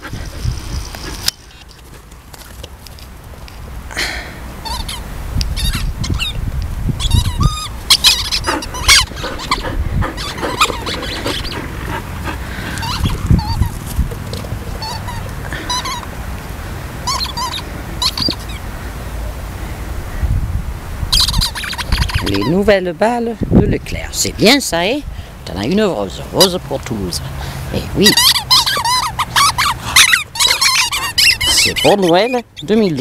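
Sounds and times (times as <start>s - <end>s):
squeaky dog toys squeaking: 4.6s - 6.4s, 7.0s - 11.7s, 12.7s - 13.8s, 14.7s - 16.1s, 17.0s - 18.6s, 21.1s - 22.6s, 28.0s - 33.0s.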